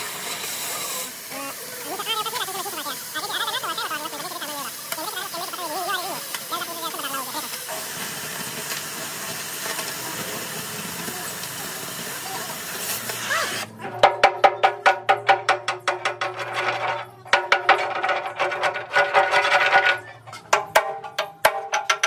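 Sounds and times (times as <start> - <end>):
cutting torch hissing: 0.0 - 13.7
hammer striking chisel on steel: 13.9 - 22.0.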